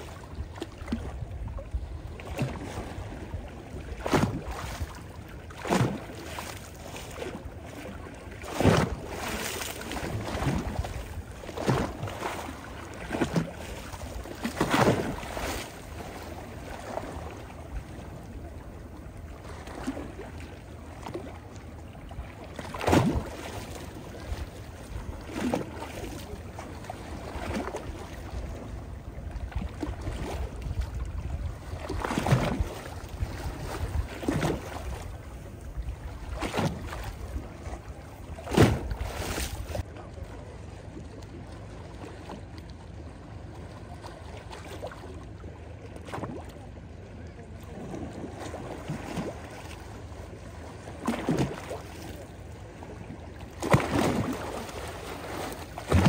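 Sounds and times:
waves splashing over stones: 8.3s - 18.2s, 22.5s - 27.8s, 38.4s - 39.9s, 53.5s - 56.0s.

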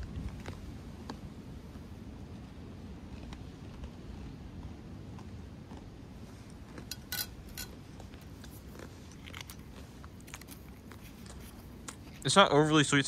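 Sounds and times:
crunching cracker: 2.9s - 12.5s.

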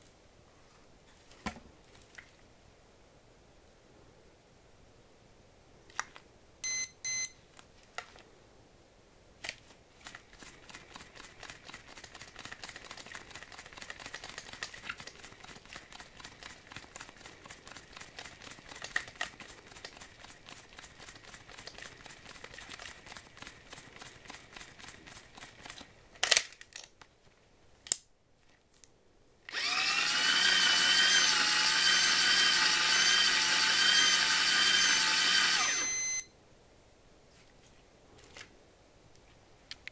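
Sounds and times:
reel motor whirring: 29.5s - 36.2s
sharp clicks of reel: 29.5s - 36.2s.

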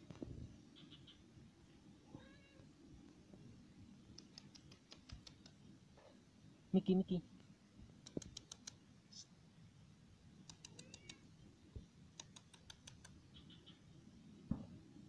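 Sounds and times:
faint rapid clicks: 4.0s - 5.6s, 8.0s - 8.8s, 10.4s - 11.2s, 12.1s - 13.2s.

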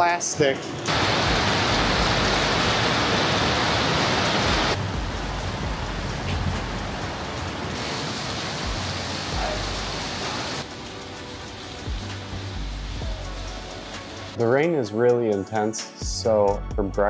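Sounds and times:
heavy rain on plastic canopy: 0.9s - 14.4s.

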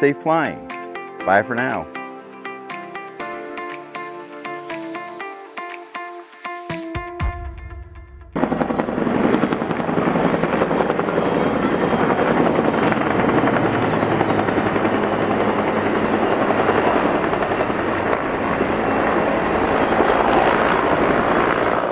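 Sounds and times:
helicopter rotor beating: 8.3s - 21.9s
helicopter engine noise: 8.4s - 21.9s.

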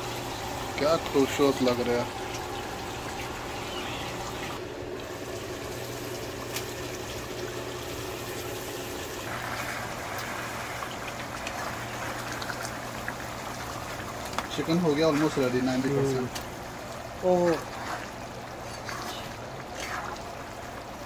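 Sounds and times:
curry bubbling in a pan: 0.0s - 21.0s
low steady hum: 0.0s - 21.0s
wooden spatula stirring pan: 17.5s - 21.0s.

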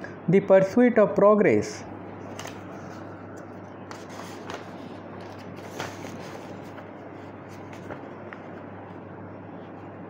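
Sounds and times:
low steady hum: 0.0s - 10.0s
page turning: 2.2s - 9.1s
paper sheets rustling: 2.3s - 9.9s.

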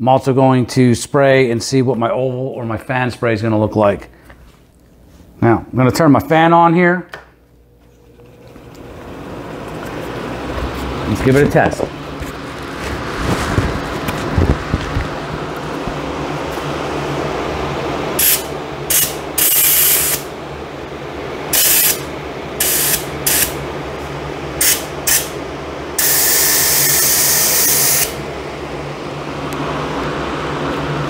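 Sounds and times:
exhaust fan humming: 0.0s - 31.0s
paint spray gun hissing: 18.2s - 20.3s, 21.5s - 23.6s, 24.6s - 25.3s, 26.0s - 28.2s.

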